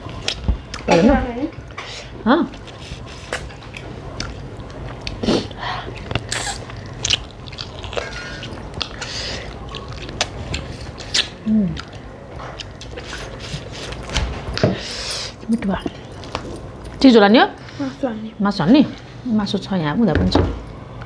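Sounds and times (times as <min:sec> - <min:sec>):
wet chewing mouth sounds: 0:02.6 - 0:14.1.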